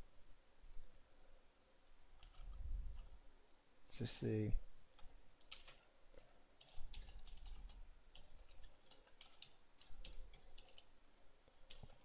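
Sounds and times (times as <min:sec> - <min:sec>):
typing on keyboard: 0:02.2 - 0:03.1, 0:04.9 - 0:12.0.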